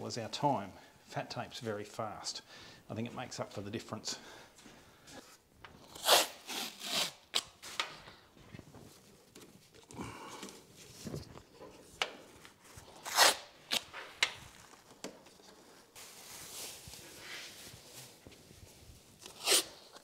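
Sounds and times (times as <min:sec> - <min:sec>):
masking tape ripping off roll: 0:05.8 - 0:07.8, 0:13.0 - 0:14.0, 0:19.2 - 0:20.0
plastic sheet rustling: 0:15.6 - 0:19.2.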